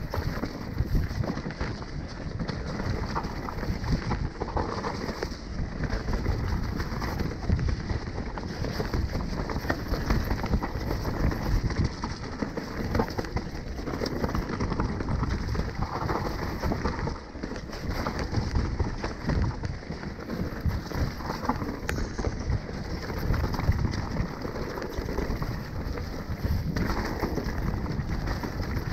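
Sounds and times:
bike clattering and rattling: 0.0 - 28.9
low rumble: 21.4 - 26.8.

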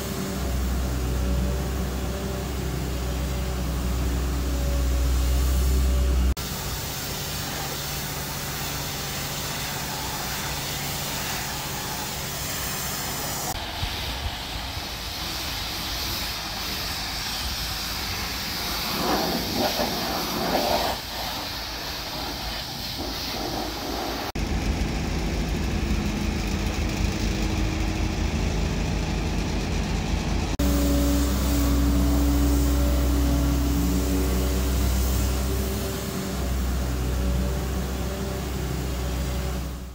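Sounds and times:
engine running steadily: 0.0 - 39.9
pressure washer spraying: 1.9 - 24.4, 30.6 - 39.9.

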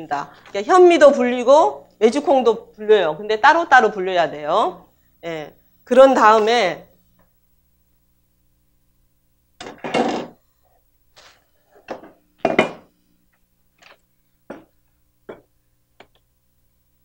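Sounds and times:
cookware knocking and clattering: 11.9 - 12.8.

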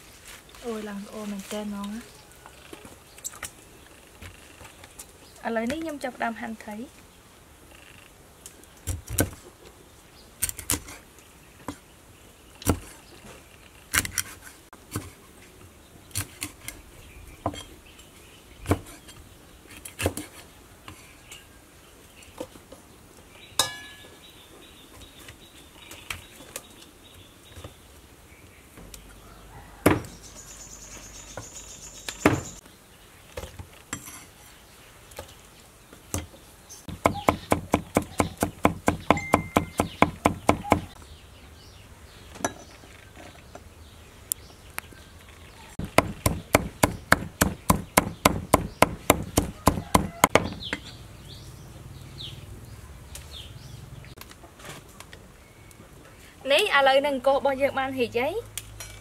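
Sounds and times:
knife chopping on wooden block: 36.9 - 40.9, 45.8 - 50.6.

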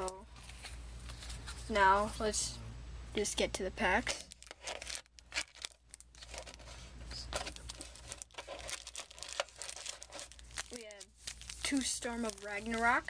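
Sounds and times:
foil packs crinkling: 4.0 - 13.0.

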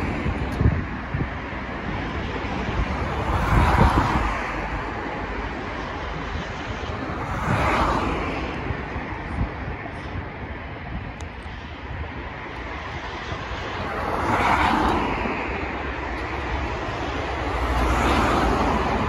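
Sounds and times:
vehicles passing close by: 0.0 - 19.0
wind buffeting microphone: 0.0 - 19.0.

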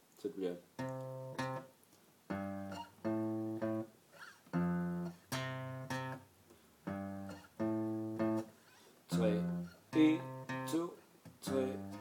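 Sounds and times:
acoustic guitar plucked bass notes: 0.8 - 1.7, 2.3 - 3.9, 4.5 - 6.2, 6.9 - 8.5, 9.1 - 12.0.

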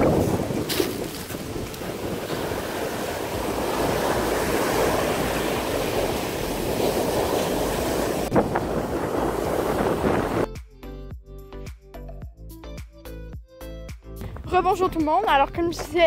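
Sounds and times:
surf on pebble beach: 0.0 - 10.5
wind on microphone: 0.0 - 10.5.

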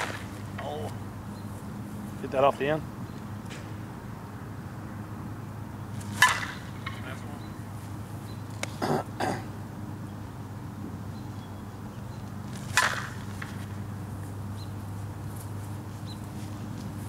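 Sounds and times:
softball bat hitting ball: 0.0 - 1.0, 6.0 - 7.0, 12.6 - 13.8
steady low hum: 0.0 - 17.0.

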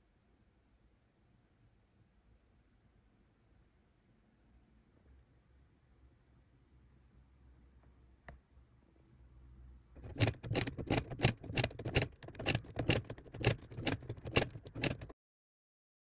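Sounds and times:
cover knocking against mechanism: 10.0 - 15.1
mechanical calculator cranking clatter: 10.0 - 15.2.

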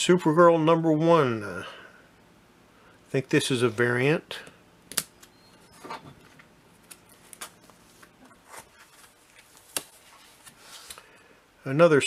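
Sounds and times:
plastic sleeves rustling: 6.0 - 11.2.

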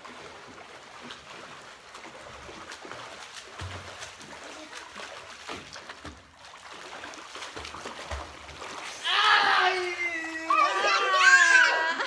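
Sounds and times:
water splashing from swimmers: 0.0 - 12.0.

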